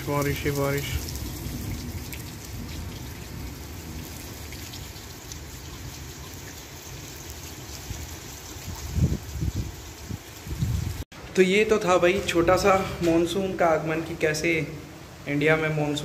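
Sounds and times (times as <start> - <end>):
raindrops tapping: 0.0 - 11.0
steady rain falling: 0.0 - 11.1, 12.0 - 16.0.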